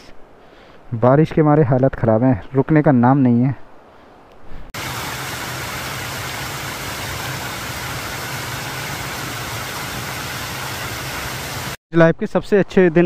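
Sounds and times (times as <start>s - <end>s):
waterfall rushing: 4.8s - 11.8s.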